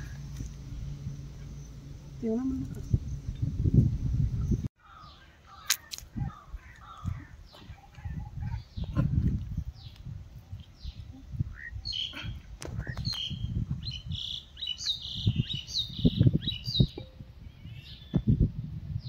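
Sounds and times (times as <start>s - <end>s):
small birds chirping: 0.0s - 18.5s
low rumbling thuds: 18.0s - 18.6s.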